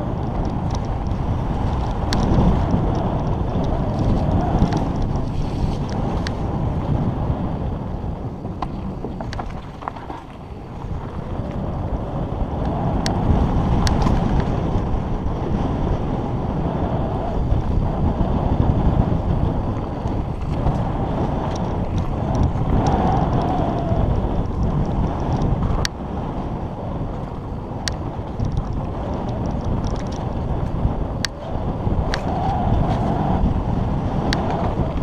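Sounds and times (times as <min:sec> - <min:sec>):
bike clicks and rattles: 0:00.0 - 0:16.6, 0:17.3 - 0:35.0
tyres rumbling on dirt: 0:00.0 - 0:16.6
wind rushing over microphone: 0:00.0 - 0:35.0.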